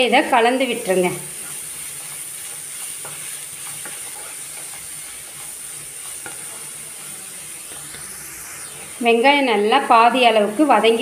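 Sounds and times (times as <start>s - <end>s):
onions sizzling in oil: 0.0s - 11.0s
spatula scraping and tapping pan: 1.4s - 6.6s.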